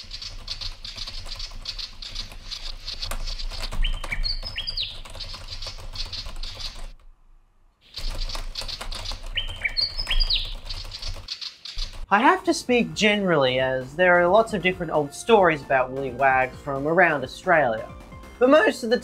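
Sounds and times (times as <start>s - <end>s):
birds chirping: 0.0s - 7.0s, 7.8s - 19.0s
computer keyboard typing: 0.0s - 7.0s, 8.0s - 12.1s.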